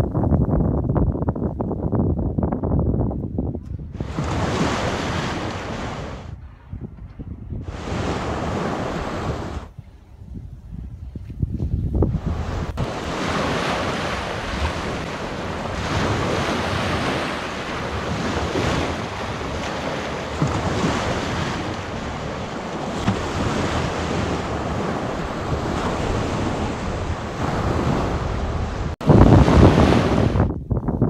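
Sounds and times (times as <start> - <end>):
wind buffeting microphone: 0.0 - 31.0
waves washing on shore: 4.0 - 6.3, 7.6 - 9.7, 12.2 - 30.5.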